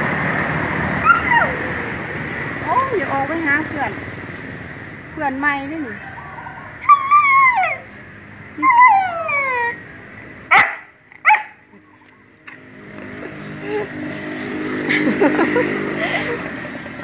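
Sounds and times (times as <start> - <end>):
dog yipping: 1.0 - 1.7, 6.3 - 7.9, 10.5 - 11.6
dog whining: 1.0 - 1.8, 6.3 - 7.9, 8.5 - 9.8.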